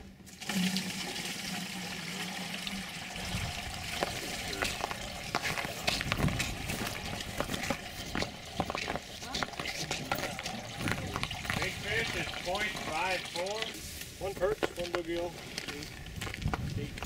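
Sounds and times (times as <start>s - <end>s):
water splashing in plastic bucket: 0.2s - 13.8s.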